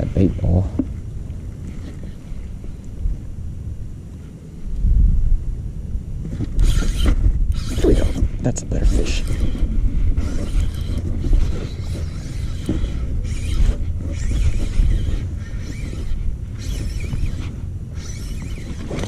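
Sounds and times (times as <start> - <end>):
steady low rumble: 0.0 - 18.1
fishing reel being cranked: 6.6 - 19.0.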